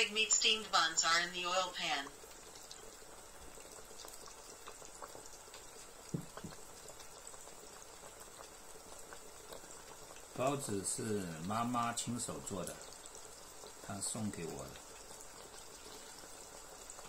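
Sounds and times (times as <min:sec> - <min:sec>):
faint crackles: 0:00.0 - 0:17.0
hot oil sizzling and bubbling: 0:00.0 - 0:17.0
soft knocks: 0:06.1 - 0:06.6.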